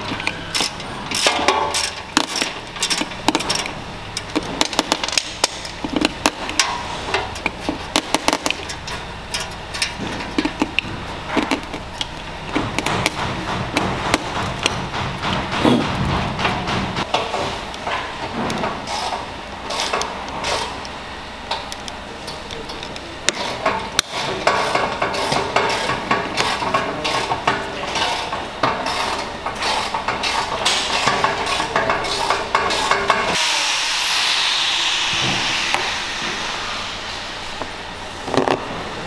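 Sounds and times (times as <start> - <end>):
steady hiss with falling whistle: 33.4 - 38.2.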